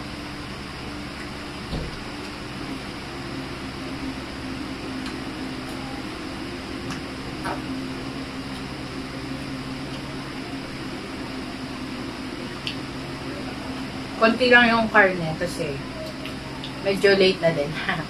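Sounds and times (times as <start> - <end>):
electric fan humming: 0.0 - 18.0.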